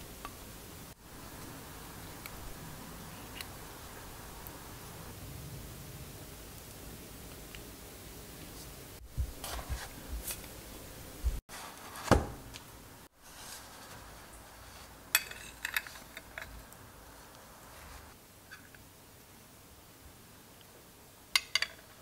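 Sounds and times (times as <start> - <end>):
metal spoon clinking on dish: 15.2 - 16.5.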